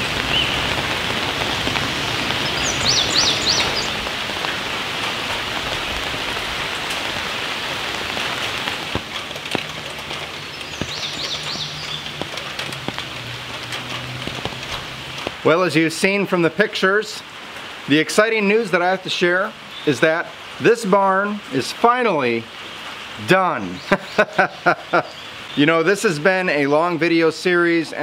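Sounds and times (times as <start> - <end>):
steady rain falling: 0.0 - 28.0
bird chirping: 2.0 - 4.0, 10.3 - 12.3, 23.6 - 25.7.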